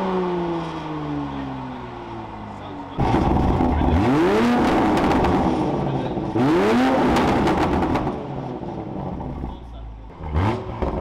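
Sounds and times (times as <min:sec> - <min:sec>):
car engine revving: 0:00.0 - 0:11.0
exhaust crackles: 0:02.9 - 0:11.0.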